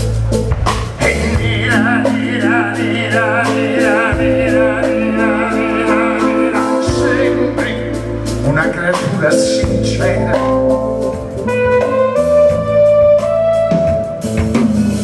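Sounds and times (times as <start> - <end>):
bass line: 0.0 - 15.0
live band playing lullaby: 0.0 - 15.0
man singing with vibrato: 1.0 - 11.6.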